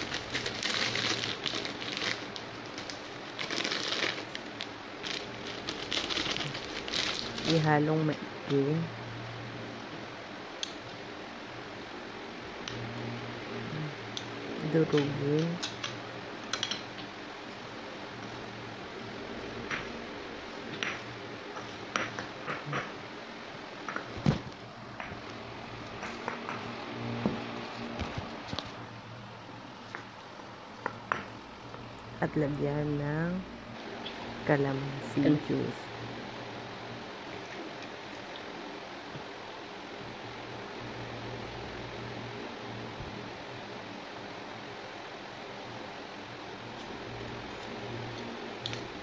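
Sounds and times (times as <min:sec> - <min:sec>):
plastic wrapper crinkling: 0:00.0 - 0:07.7.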